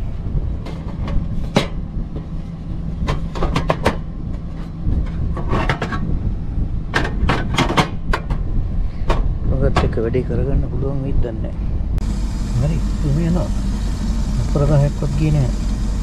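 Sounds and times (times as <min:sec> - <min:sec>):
car engine idling: 0:12.0 - 0:16.0.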